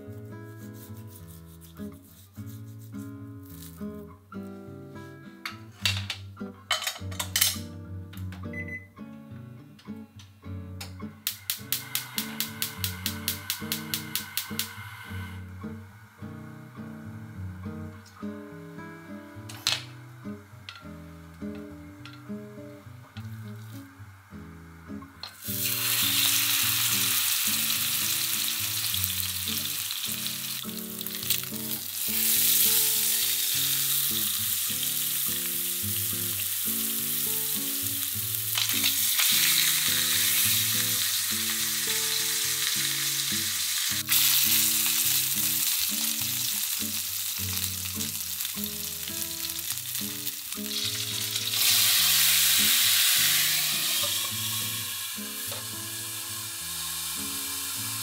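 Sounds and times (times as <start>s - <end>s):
beef sizzling in hot oil: 11.3s - 15.5s, 25.3s - 58.0s
liquid poured into hot pan: 11.3s - 15.5s, 25.3s - 58.0s.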